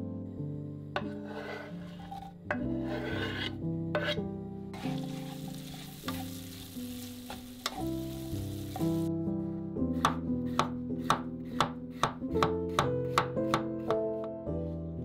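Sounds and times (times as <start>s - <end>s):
wooden spatula scraping pan: 1.0s - 9.1s
onions sizzling in oil: 4.8s - 9.1s.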